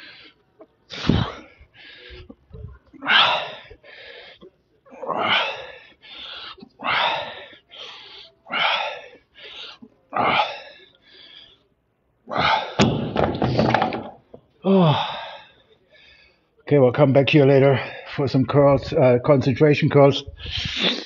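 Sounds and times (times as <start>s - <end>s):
heavy breathing: 0.0s - 12.8s, 14.6s - 16.6s, 20.2s - 21.0s.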